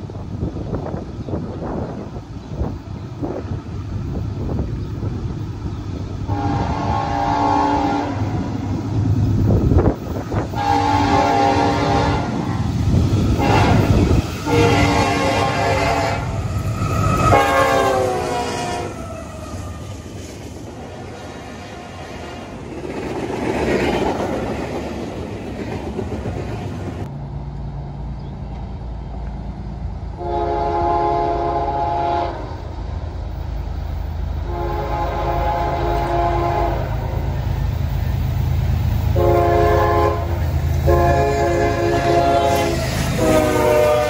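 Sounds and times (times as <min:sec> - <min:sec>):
freight train rolling past: 0:00.0 - 0:44.0
locomotive engine rumbling: 0:00.0 - 0:44.0
train air horn blasts: 0:06.3 - 0:08.5, 0:10.5 - 0:12.5, 0:13.4 - 0:19.6, 0:30.2 - 0:32.6, 0:34.4 - 0:37.3, 0:39.1 - 0:44.0.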